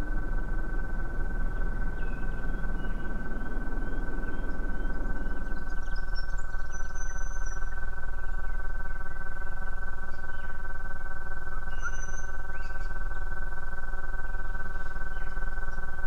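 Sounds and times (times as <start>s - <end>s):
low rumble: 0.0s - 10.4s
electronic drone of held tones: 0.0s - 16.0s
high bird-like chirps: 11.6s - 13.0s.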